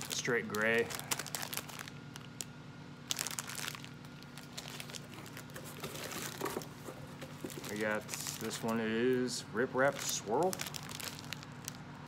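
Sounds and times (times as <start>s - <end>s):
packaging crinkling and rustling: 0.0s - 9.2s, 9.8s - 12.0s.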